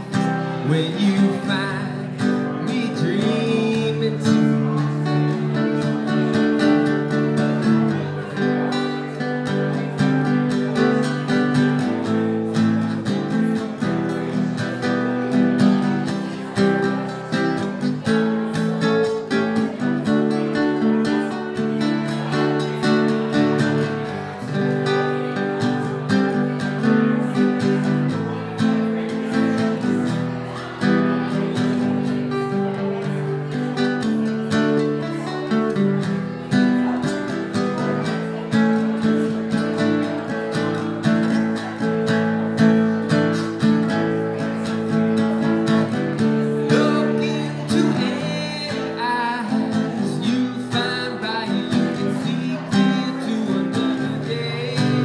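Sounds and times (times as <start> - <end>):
man singing: 0.0 - 8.7, 44.0 - 55.0
acoustic guitar strumming: 0.0 - 55.0.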